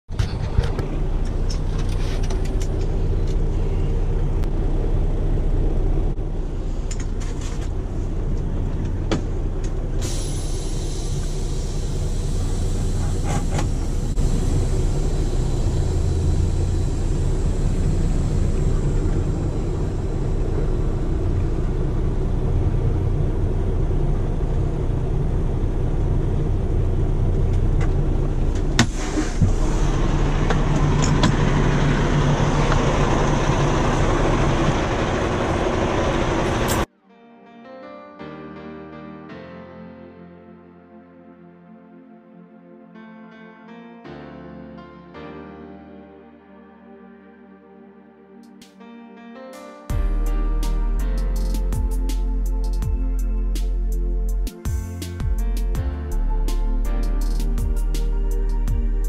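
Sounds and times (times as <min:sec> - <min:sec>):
diesel truck engine running: 0:00.2 - 0:36.9
faint high whine: 0:09.9 - 0:22.5.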